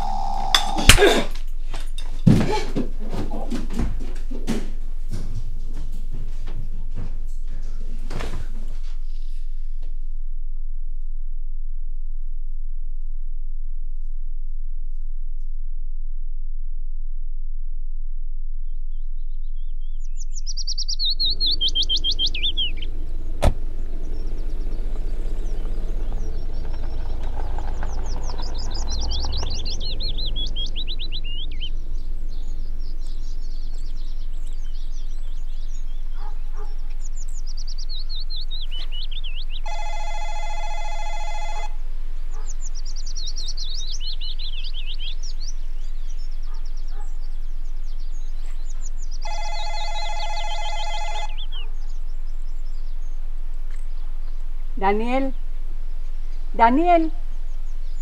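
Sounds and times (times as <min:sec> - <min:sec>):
songbird trilling: 0:00.0 - 0:01.0, 0:20.1 - 0:58.0
low rumble: 0:09.0 - 0:36.1.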